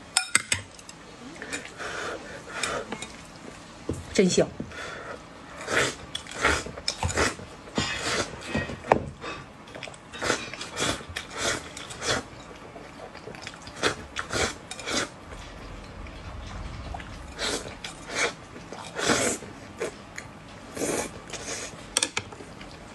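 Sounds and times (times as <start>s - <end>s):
chewing: 9.6s - 22.9s.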